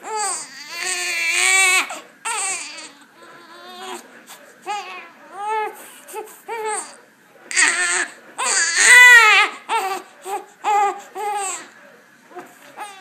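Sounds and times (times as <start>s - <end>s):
newborn baby crying: 0.0s - 4.0s, 4.6s - 11.8s, 12.8s - 13.0s.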